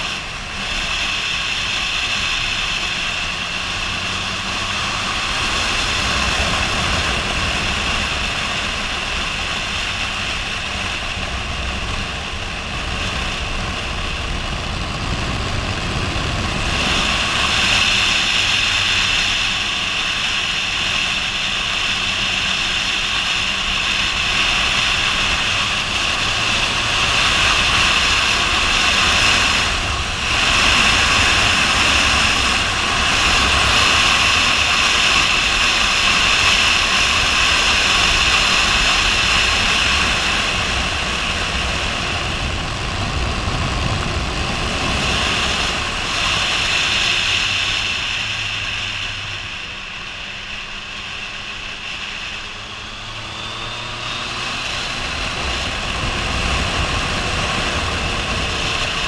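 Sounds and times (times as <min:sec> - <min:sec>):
motorcycle engine running: 0:00.0 - 0:59.0
wind rushing past helmet: 0:23.4 - 0:59.0.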